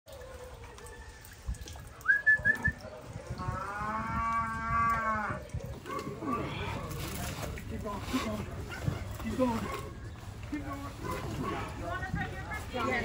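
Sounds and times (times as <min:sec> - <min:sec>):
cow mooing: 0:03.4 - 0:05.4.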